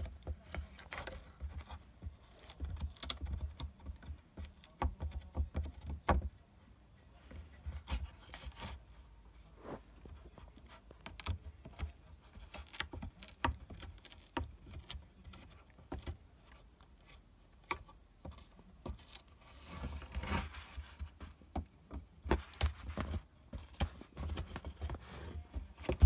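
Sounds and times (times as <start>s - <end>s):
puppy gnawing wood: 0.0s - 6.3s, 10.1s - 19.3s.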